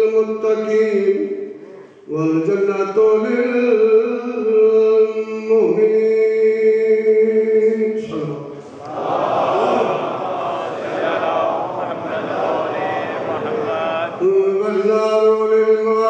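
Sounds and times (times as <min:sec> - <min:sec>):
man chanting: 0:00.0 - 0:08.7, 0:10.7 - 0:16.0.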